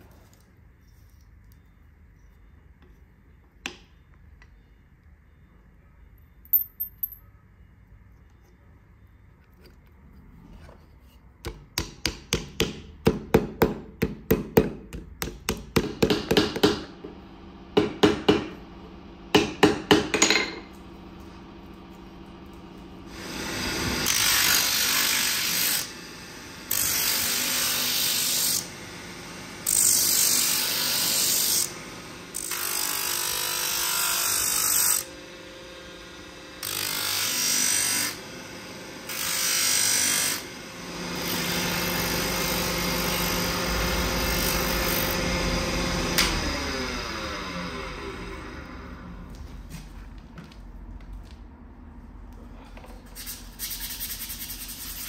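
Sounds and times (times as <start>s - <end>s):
hammer striking steel pins: 19.3s - 20.7s
sanding disc hissing: 53.0s - 55.0s.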